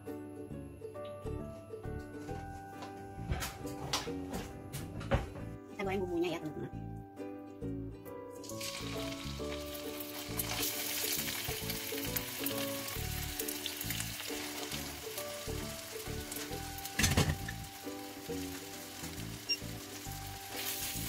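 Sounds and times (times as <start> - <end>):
spice paste sizzling in oil: 8.4 - 21.0.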